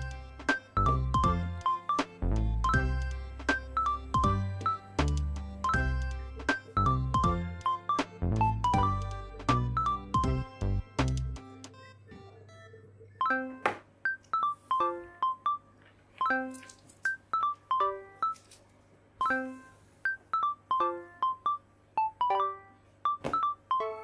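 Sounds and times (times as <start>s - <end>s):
chiming background music: 5.6s - 10.6s.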